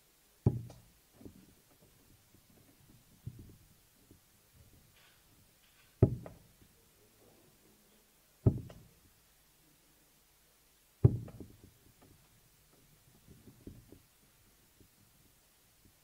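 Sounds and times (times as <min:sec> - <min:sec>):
darts striking a dartboard: 0:00.5 - 0:00.8, 0:06.0 - 0:06.4, 0:08.5 - 0:08.9, 0:11.0 - 0:11.6.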